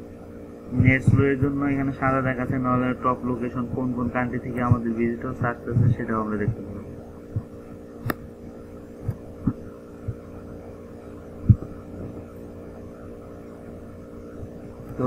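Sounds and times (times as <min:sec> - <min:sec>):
electrical hum: 0:00.0 - 0:15.0
click: 0:08.0 - 0:08.2
low thumps: 0:09.0 - 0:10.4, 0:11.4 - 0:12.3.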